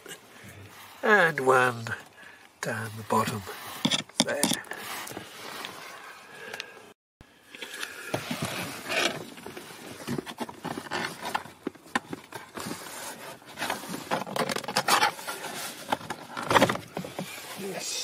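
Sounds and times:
plastic trim panel scraping and clicking: 3.8s - 4.7s.

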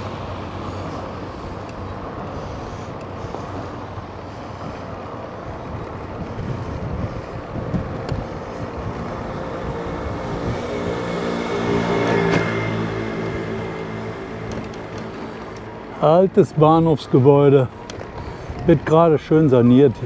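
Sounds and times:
engine hum approaching: 0.0s - 20.0s
road traffic: 0.0s - 20.0s
wind on the microphone: 3.4s - 12.0s.

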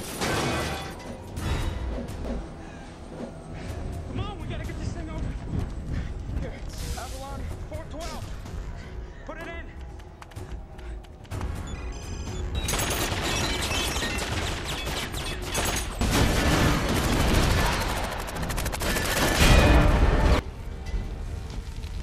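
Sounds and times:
dramatic score music: 0.0s - 22.0s.

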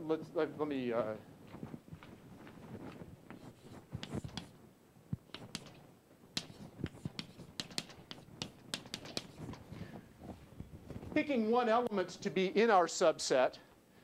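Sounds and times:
chalk tapping on blackboard: 3.3s - 4.6s, 5.3s - 5.8s, 6.4s - 9.6s.

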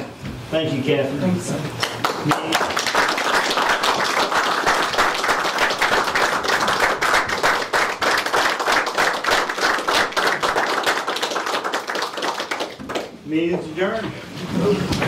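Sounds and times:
people applauding: 1.8s - 13.2s.

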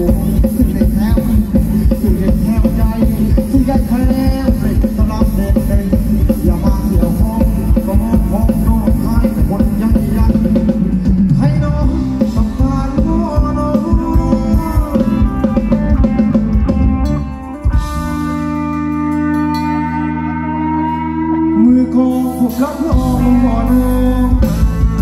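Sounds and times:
drum kit beat: 0.0s - 20.1s, 22.1s - 25.0s
bass: 0.0s - 25.0s
guitar: 0.0s - 25.0s
melody line: 12.2s - 25.0s.

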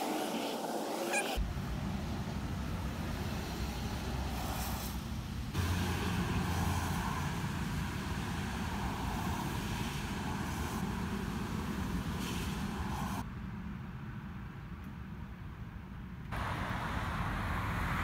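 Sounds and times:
hiss: 3.2s - 13.2s.

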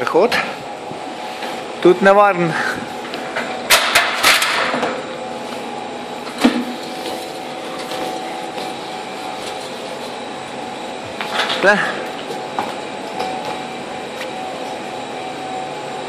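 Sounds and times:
steady mechanical hum: 0.0s - 16.0s
knocks and clanks on metal: 3.3s - 5.0s.

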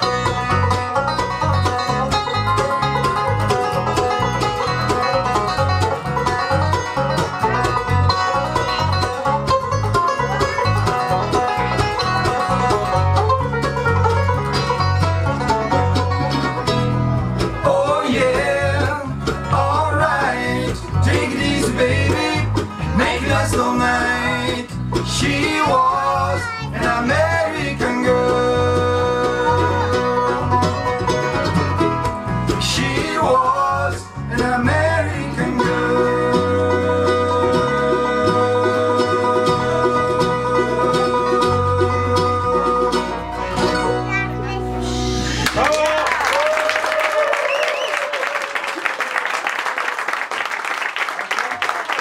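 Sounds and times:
acoustic guitar: 0.0s - 45.7s
banjo picking: 0.0s - 45.7s
mandolin: 0.0s - 45.8s
bluegrass band playing: 0.0s - 46.1s
upright bass line: 0.0s - 46.3s
man singing: 17.6s - 30.6s, 32.5s - 43.4s.

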